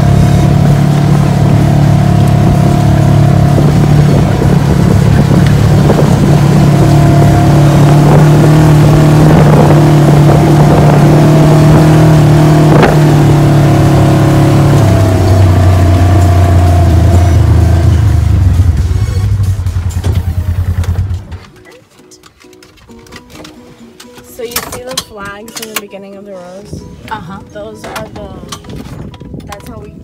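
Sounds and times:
off-road vehicle engine running: 0.0 - 21.8.

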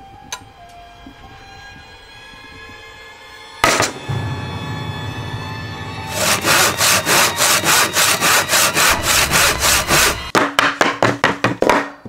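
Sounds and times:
hand saw cutting wood: 6.1 - 10.3.

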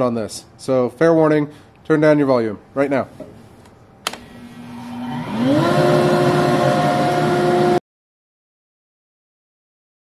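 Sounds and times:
switch click: 4.0 - 4.3
dust collector motor whining: 4.1 - 7.8.

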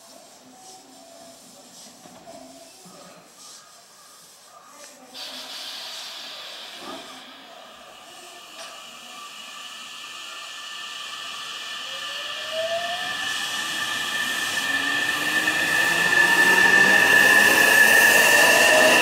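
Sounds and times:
electric train motor whine: 7.7 - 19.0.

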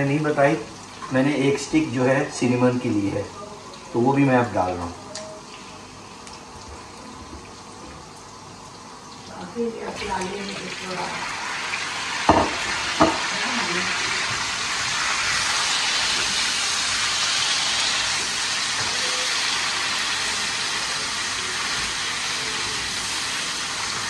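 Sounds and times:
meat sizzling in a pan: 5.3 - 24.0.

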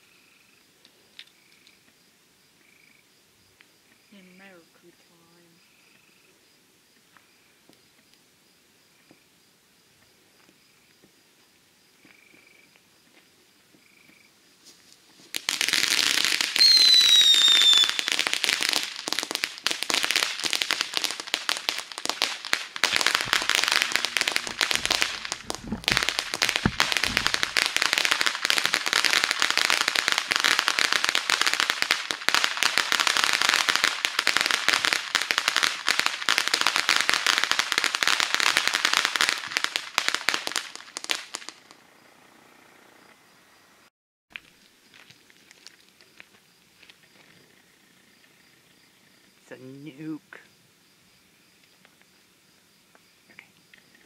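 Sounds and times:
firework crackling: 15.2 - 42.0
falling whistle: 16.6 - 18.2
low thumps: 22.8 - 27.9.

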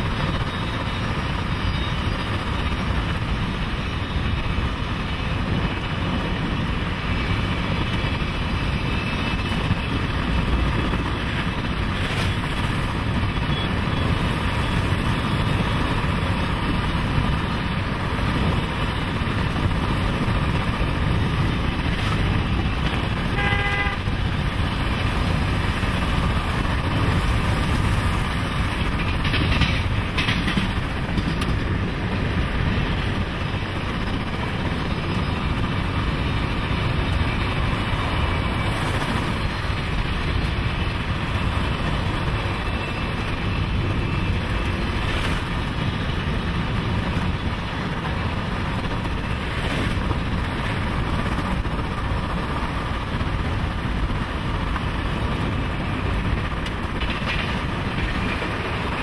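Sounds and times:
rushing wind: 0.0 - 59.0
train rolling noise: 0.0 - 59.0
short horn toot: 23.3 - 24.0.

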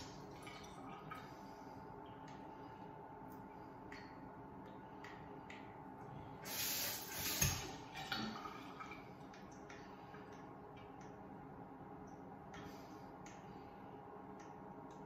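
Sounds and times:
water spraying into sink: 6.4 - 7.8.

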